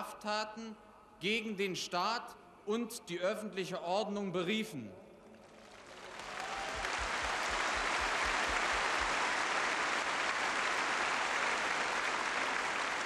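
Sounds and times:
large crowd applauding: 0:05.4 - 0:13.0.

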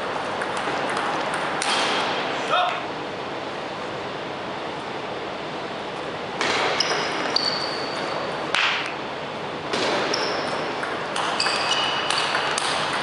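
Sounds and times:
shoes squeaking on floor: 0:06.8 - 0:08.3, 0:10.0 - 0:10.7, 0:11.4 - 0:12.1.

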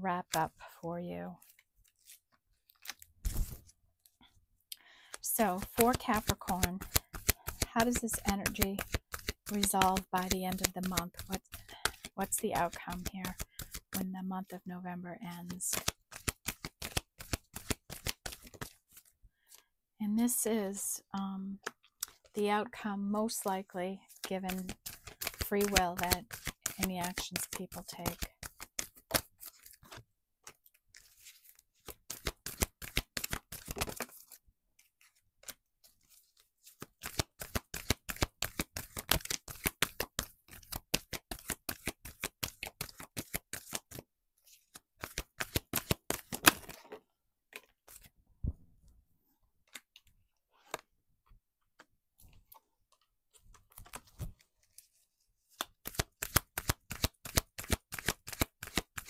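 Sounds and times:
cards being shuffled: 0:01.4 - 0:03.8, 0:05.1 - 0:14.0, 0:15.5 - 0:19.6, 0:24.1 - 0:48.1, 0:53.4 - 0:59.0.

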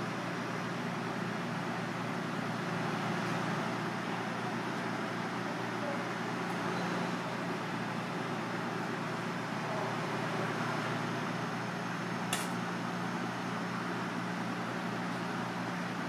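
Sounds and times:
kitchen machinery humming: 0:00.0 - 0:16.0
short sharp click: 0:12.3 - 0:12.6.

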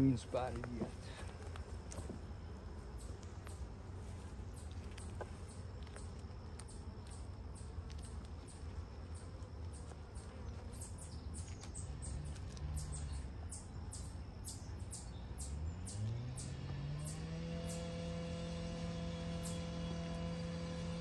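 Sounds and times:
bird chirping: 0:04.4 - 0:21.0
low motor hum: 0:10.8 - 0:21.0
low outdoor rumble: 0:10.9 - 0:21.0.

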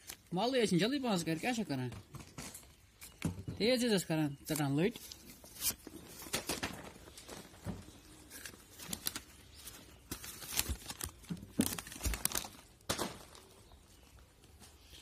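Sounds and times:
paper crinkling: 0:00.0 - 0:00.4, 0:04.4 - 0:14.9.

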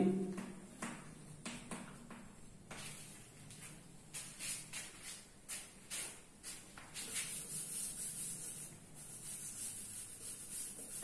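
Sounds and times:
chalk scraping on blackboard: 0:04.2 - 0:11.0.

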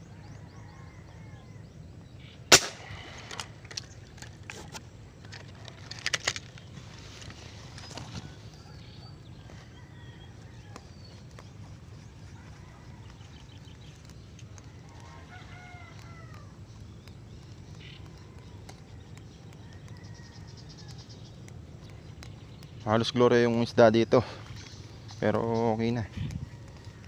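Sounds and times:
rooster crowing: 0:00.0 - 0:01.6, 0:09.4 - 0:11.0, 0:12.2 - 0:13.6, 0:14.6 - 0:16.6, 0:19.6 - 0:21.1
low background rumble: 0:00.0 - 0:27.0.

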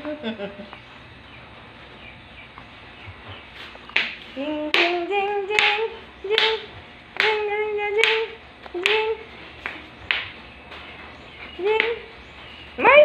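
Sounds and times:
sharp handclaps: 0:04.0 - 0:06.6, 0:07.2 - 0:07.4, 0:08.0 - 0:10.4.

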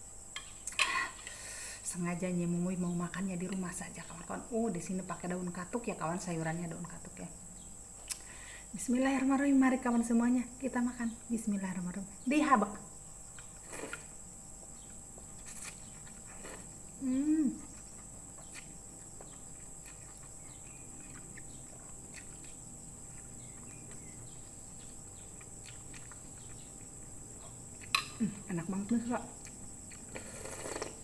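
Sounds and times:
faint high-pitched hiss: 0:00.0 - 0:31.0
noodles slurping: 0:13.6 - 0:14.1, 0:15.4 - 0:16.8, 0:29.9 - 0:31.0
person humming: 0:17.0 - 0:17.7.

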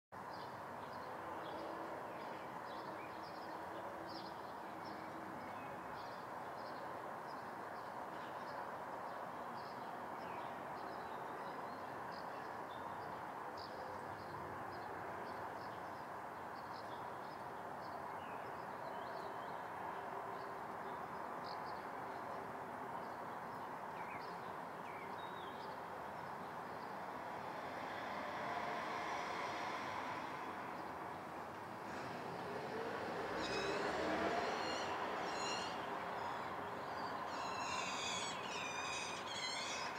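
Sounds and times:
birds chirping: 0:33.3 - 0:39.9.

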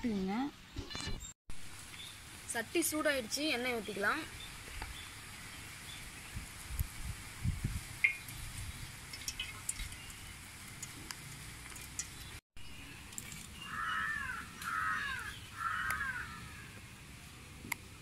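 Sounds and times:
crow cawing: 0:13.6 - 0:16.8.

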